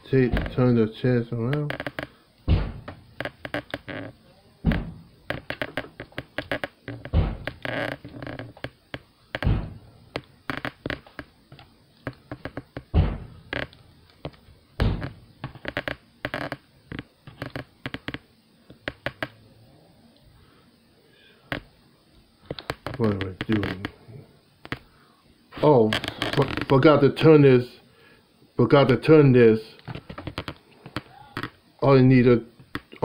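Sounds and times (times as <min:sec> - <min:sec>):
loud plastic thunks: 0:00.2 - 0:00.6, 0:02.4 - 0:03.0, 0:04.6 - 0:07.6, 0:09.4 - 0:09.9, 0:12.4 - 0:13.6, 0:14.2 - 0:15.8.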